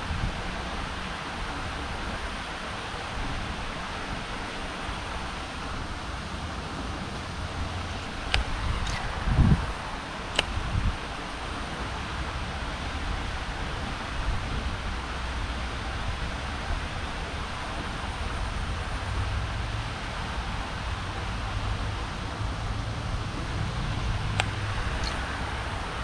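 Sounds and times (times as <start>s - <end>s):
even hiss: 23.5s - 26.0s.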